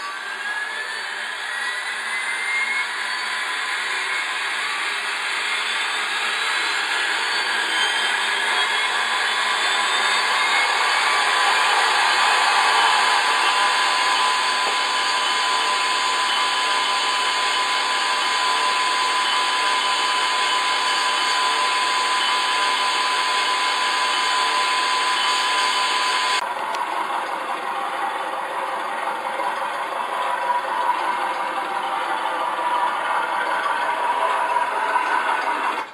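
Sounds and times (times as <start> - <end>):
thin whistle-like tone: 0.0 - 26.4
simulated diesel engine from speaker: 0.0 - 35.9.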